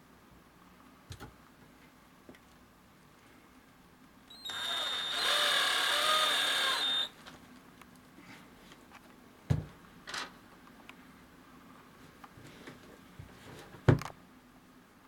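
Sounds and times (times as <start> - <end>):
cordless drill running: 4.3 - 7.1
drill clicks: 4.3 - 7.1.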